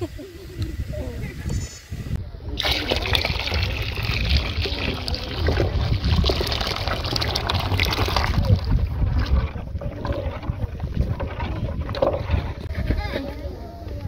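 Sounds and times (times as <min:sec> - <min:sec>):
liquid pouring into water: 0:02.6 - 0:12.7.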